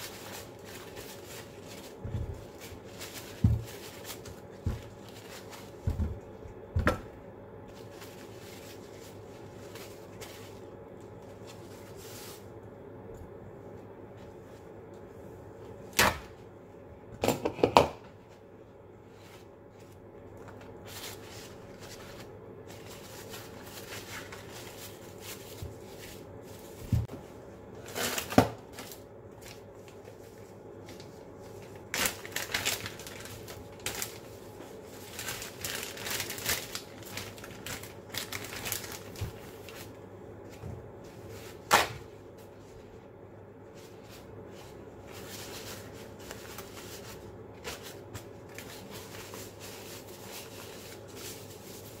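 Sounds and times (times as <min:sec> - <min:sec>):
plastic bag crinkling: 0:00.0 - 0:05.9, 0:27.8 - 0:40.0
items knocking on counter: 0:03.4 - 0:03.8, 0:05.8 - 0:07.1, 0:17.2 - 0:18.0.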